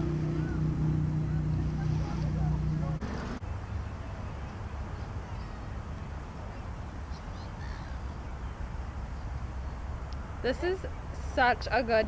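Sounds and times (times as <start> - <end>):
faint bird calls: 3.6 - 11.2.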